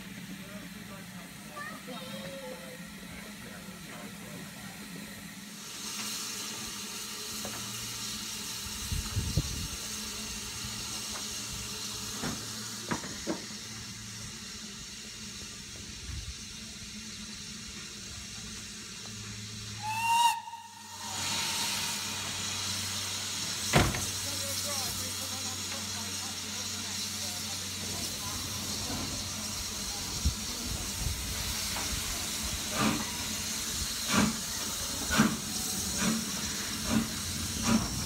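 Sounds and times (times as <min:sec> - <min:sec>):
steam locomotive hissing: 0:00.0 - 0:38.0
steam whistle blast: 0:19.8 - 0:23.0.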